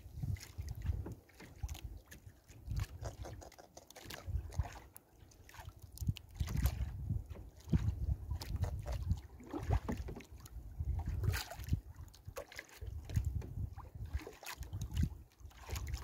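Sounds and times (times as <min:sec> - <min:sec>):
wind gusting on microphone: 0:00.0 - 0:01.0, 0:06.4 - 0:09.8
water sloshing around boat: 0:00.0 - 0:16.0.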